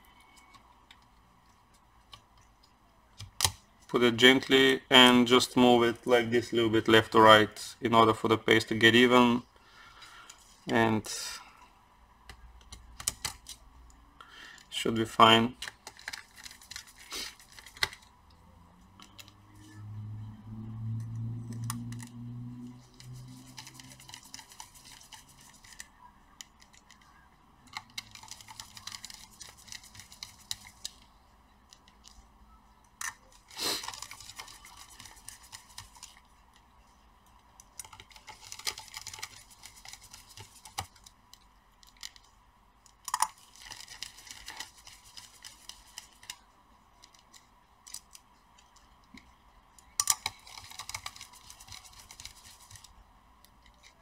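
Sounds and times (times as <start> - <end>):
screwdriver ticking and scraping: 27.7 - 31.0, 37.6 - 46.4, 49.8 - 54.0.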